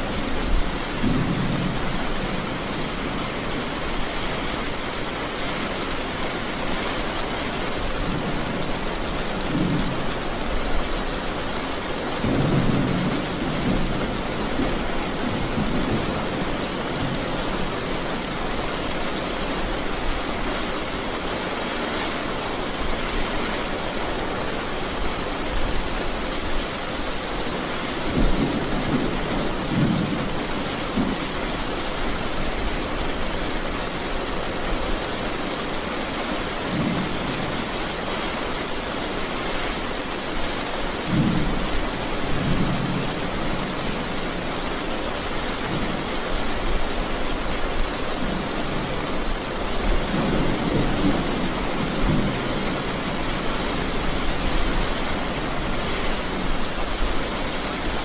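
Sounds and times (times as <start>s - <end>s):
thunder rumbling: 0.0s - 4.8s
steady rain falling: 0.0s - 58.0s.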